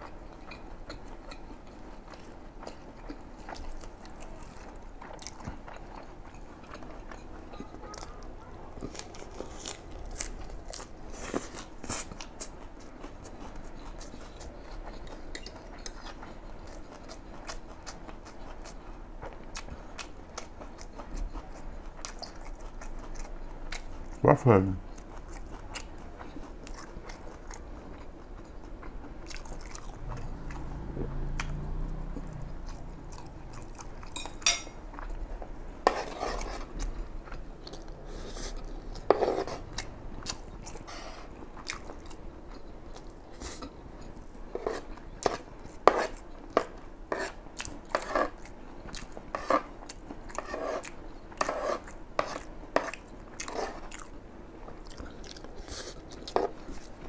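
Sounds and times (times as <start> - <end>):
chewing with wet smacks: 0.0 - 24.2, 24.9 - 57.0
cutlery scraping a tray: 34.2 - 34.8, 35.8 - 36.7, 39.1 - 39.6, 51.4 - 52.9.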